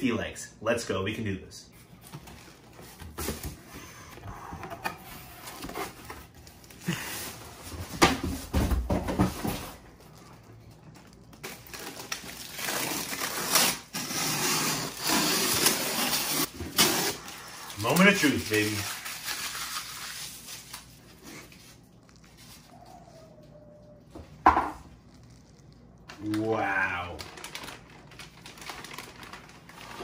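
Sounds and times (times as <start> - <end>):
tape being cut: 12.6 - 17.2.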